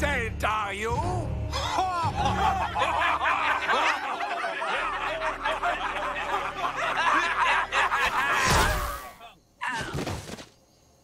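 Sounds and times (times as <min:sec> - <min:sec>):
cartoon voices laughing: 0:01.6 - 0:09.3.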